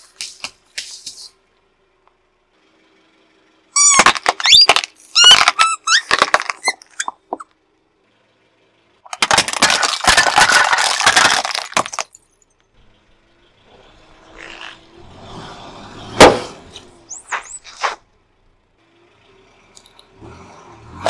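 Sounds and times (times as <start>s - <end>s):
inflatable toy creaking: 3.8s - 7.1s
plastic cracking under tyre: 3.9s - 7.1s, 9.1s - 12.1s.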